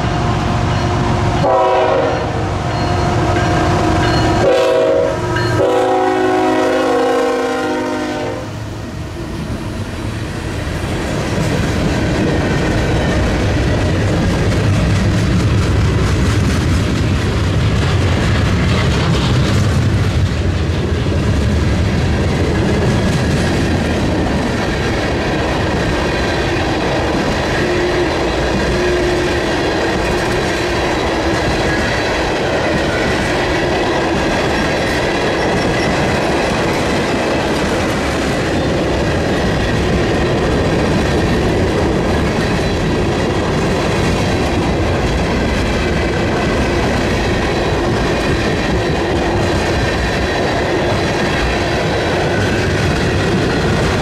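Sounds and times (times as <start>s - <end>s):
train wheels clattering over rail joints: 10.8s - 54.0s.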